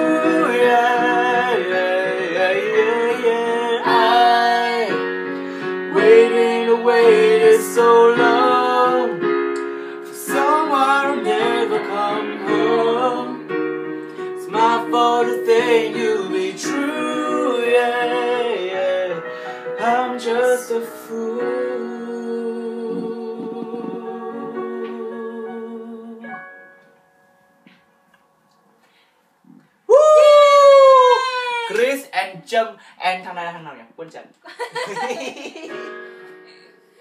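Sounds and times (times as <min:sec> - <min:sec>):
woman and man singing duet: 0:00.0 - 0:09.2, 0:10.1 - 0:13.7, 0:14.3 - 0:26.4
electric keyboard piano chords: 0:00.0 - 0:28.4, 0:34.8 - 0:37.0.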